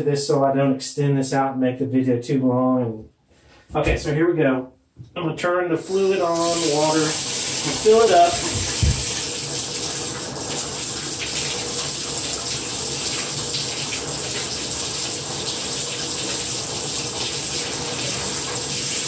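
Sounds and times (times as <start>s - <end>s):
faucet water pouring: 5.8s - 19.0s.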